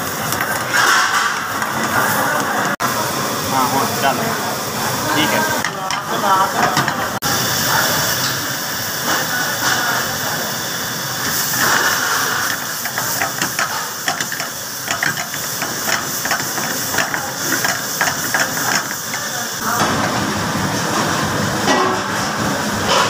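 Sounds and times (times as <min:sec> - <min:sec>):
frying sizzle in pan: 0:00.0 - 0:23.0
oil spattering crackles: 0:11.0 - 0:20.1.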